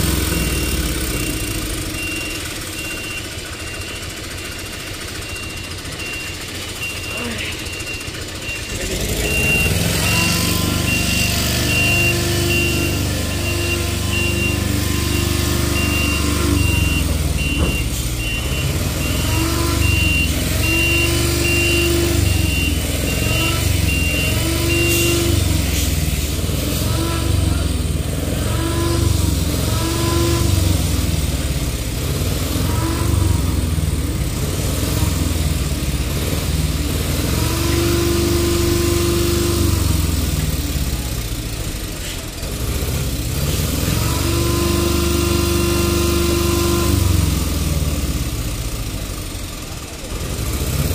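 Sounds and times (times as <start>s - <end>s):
truck diesel engine running: 0.0s - 50.9s
warning beeper short beeps: 0.2s - 25.6s.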